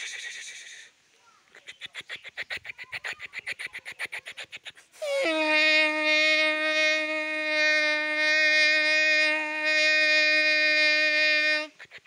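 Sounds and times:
man imitating a train horn: 5.0 - 11.8.

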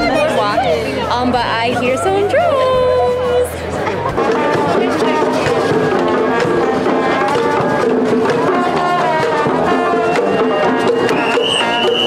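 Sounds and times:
drums beating: 0.0 - 12.0
brass horns playing tune: 4.0 - 12.0.

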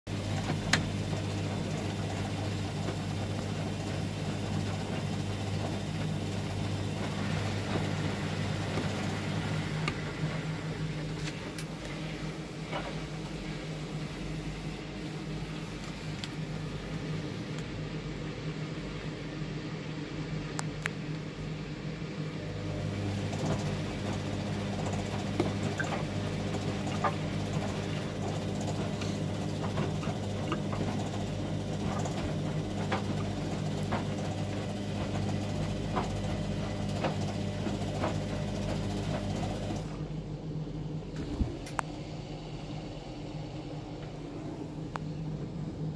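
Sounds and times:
washing machine motor humming: 0.1 - 45.9
laundry tumbling and sloshing: 23.1 - 40.0.

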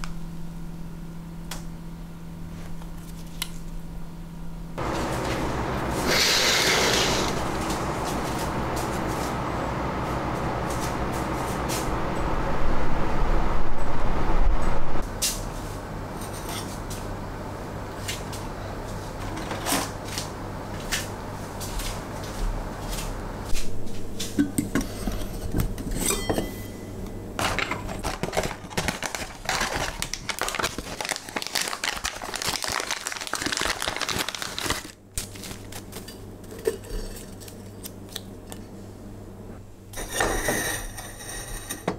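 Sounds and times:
steady noise stopping sharply: 4.8 - 15.0
clinks of tea things: 25.9 - 26.8.

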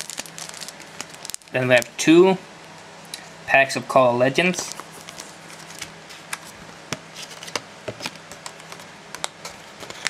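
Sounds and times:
plastic packaging crackling: 0.0 - 2.0, 4.5 - 6.6.

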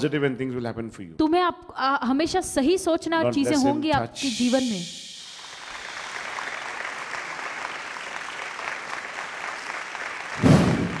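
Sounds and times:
congregation applauding: 5.1 - 11.0
short loud thud: 10.4 - 11.0.

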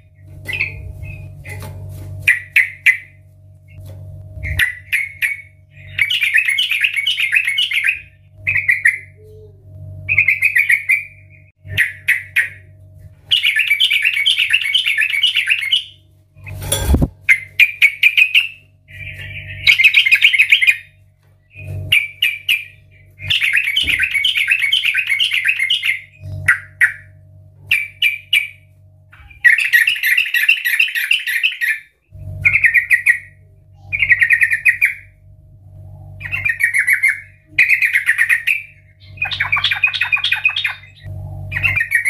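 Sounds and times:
bird singing chattering notes: 4.5 - 9.2, 13.3 - 16.0, 21.6 - 27.1, 36.2 - 42.0.

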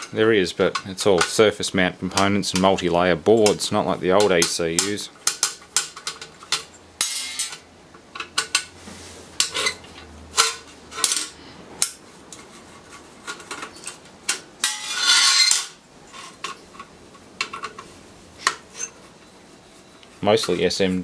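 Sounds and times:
metal clinking on workbench: 5.4 - 7.6
metal scraping rattle: 12.3 - 17.9.

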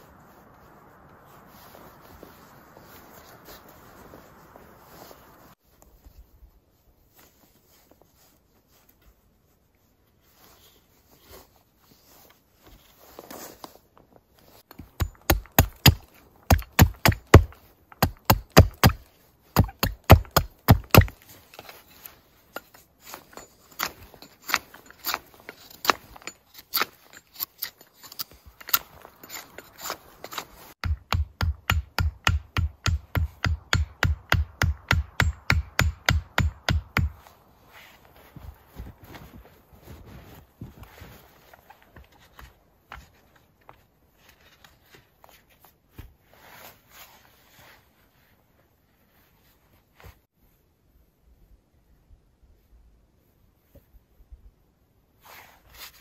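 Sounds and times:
hatchet striking wooden stake: 14.7 - 21.2, 23.3 - 37.4.

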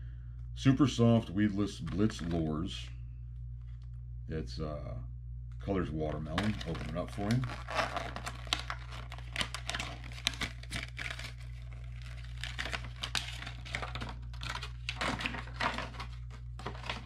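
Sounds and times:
plastic packaging crinkling: 6.2 - 17.0.

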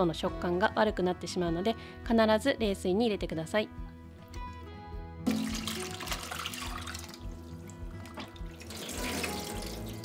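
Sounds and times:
soft background music: 0.0 - 10.0
water splashing and draining in sink: 5.3 - 10.0.

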